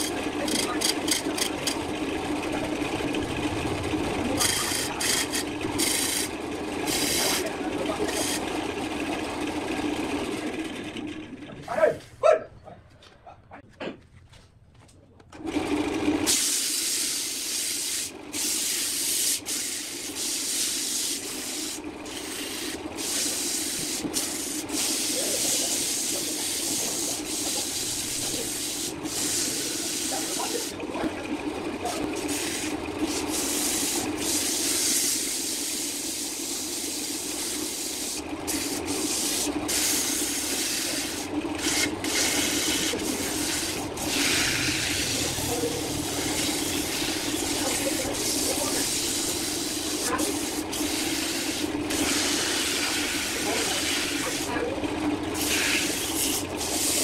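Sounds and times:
lathe motor hum: 0.0s - 11.7s, 15.4s - 57.0s
sandpaper hissing on wood: 4.4s - 6.3s, 16.3s - 30.8s, 32.2s - 54.5s, 55.4s - 57.0s.

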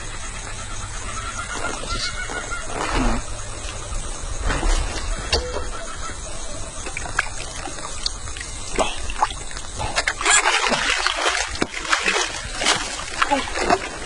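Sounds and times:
small splashes and clicks: 6.8s - 14.0s
water pouring and splashing: 6.8s - 14.0s.

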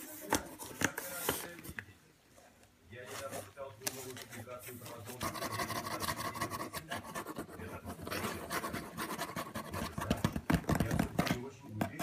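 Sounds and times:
kitten scratching cardboard: 3.2s - 12.0s.

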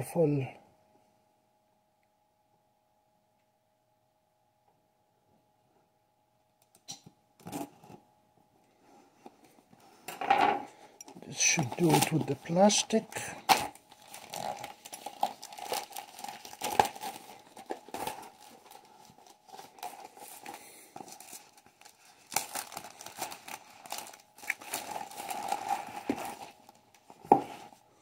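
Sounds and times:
plastic shrink-wrap crinkling: 11.1s - 27.9s.

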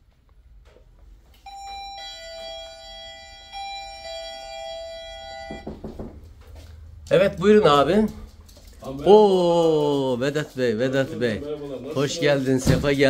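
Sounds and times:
two-tone doorbell chime: 1.5s - 5.8s.

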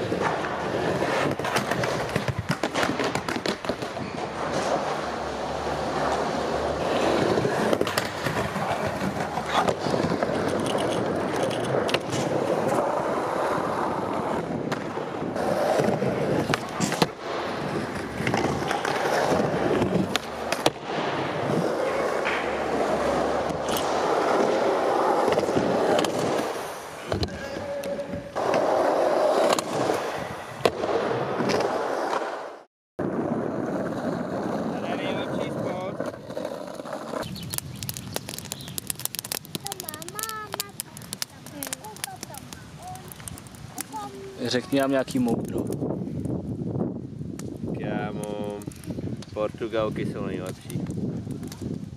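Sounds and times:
skateboard clacking on ground: 0.0s - 13.3s
skateboard wheels rolling: 0.0s - 51.9s.

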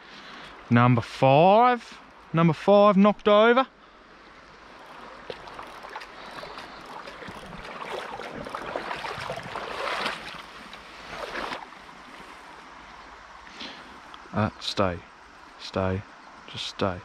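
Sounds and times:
small river rushing: 3.4s - 17.0s
water splashing and sloshing: 4.4s - 14.3s.

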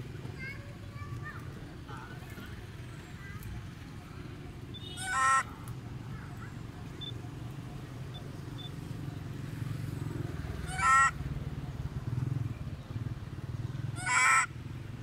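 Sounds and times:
macaque screeching: 5.0s - 5.5s, 10.6s - 11.2s, 14.0s - 14.5s.

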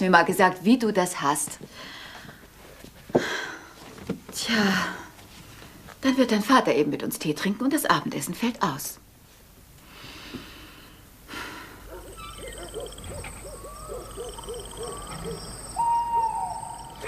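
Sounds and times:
owl hooting: 11.9s - 17.0s.

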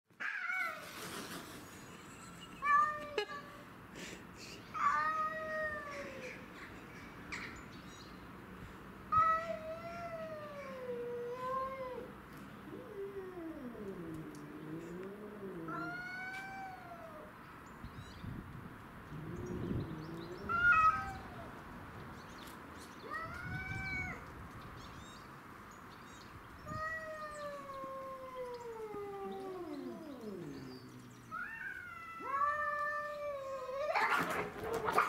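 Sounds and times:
cats yowling in a fight: 0.2s - 1.2s, 4.8s - 6.4s, 9.2s - 17.4s, 19.1s - 21.6s, 23.0s - 24.3s, 26.6s - 35.0s.

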